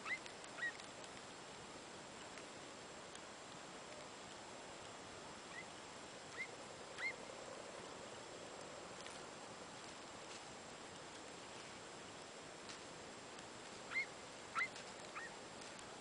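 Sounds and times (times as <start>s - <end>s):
distant dog yelps: 6.4s - 7.2s, 13.9s - 15.4s.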